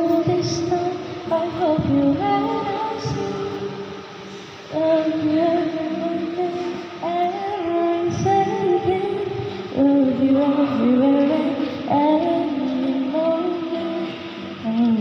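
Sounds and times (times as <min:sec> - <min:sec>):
girl singing ballad: 0:00.0 - 0:15.0.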